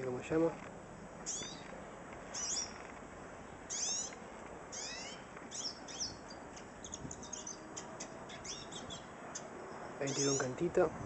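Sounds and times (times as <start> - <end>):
bird short chips: 1.2 - 1.6
bird whistled calls: 3.7 - 4.1, 4.7 - 9.1.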